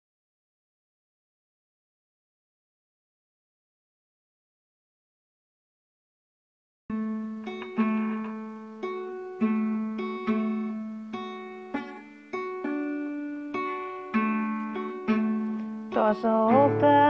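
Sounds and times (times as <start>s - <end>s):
fingerpicked acoustic guitar: 6.9s - 17.0s.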